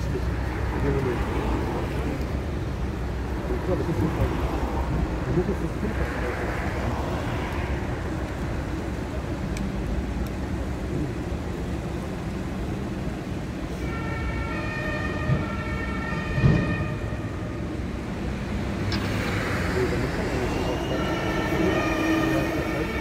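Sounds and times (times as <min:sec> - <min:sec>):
two-tone siren: 0:13.8 - 0:17.6, 0:19.0 - 0:23.0.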